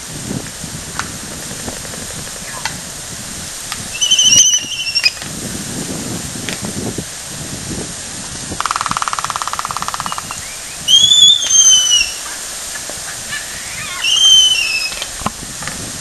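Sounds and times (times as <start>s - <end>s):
albatross bill-clacking rattle: 0.9s - 3.0s, 8.5s - 10.5s
albatross high calls: 1.8s - 3.0s, 3.9s - 5.2s, 8.6s - 15.1s.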